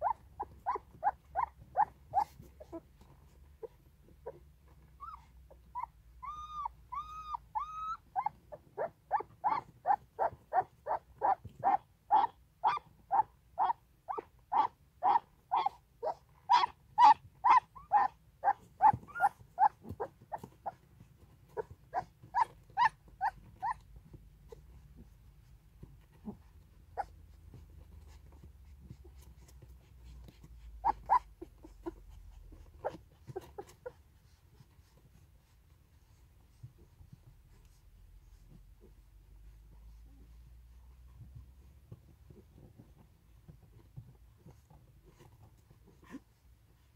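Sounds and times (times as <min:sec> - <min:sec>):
puppies squeaking: 0:00.0 - 0:02.8, 0:05.0 - 0:20.8, 0:21.6 - 0:23.9, 0:30.2 - 0:34.0
puppies whining: 0:00.0 - 0:20.8, 0:21.5 - 0:23.9, 0:26.2 - 0:29.5, 0:30.2 - 0:35.0.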